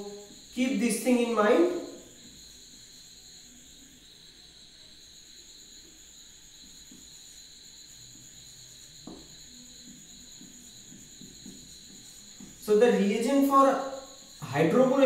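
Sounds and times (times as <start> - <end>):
high-pitched whine: 0.0 - 6.4
marker strokes on whiteboard: 8.1 - 14.2.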